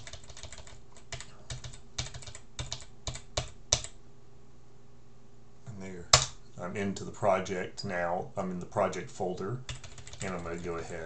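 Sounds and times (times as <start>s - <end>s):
computer keyboard typing: 0.0s - 4.0s, 9.7s - 11.0s.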